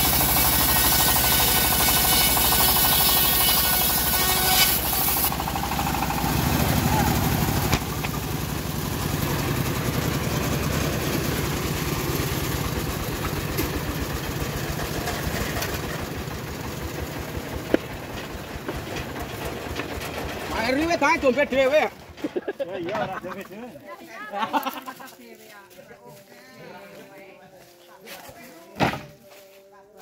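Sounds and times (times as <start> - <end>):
engine running with low pulsing: 0.0 - 22.2.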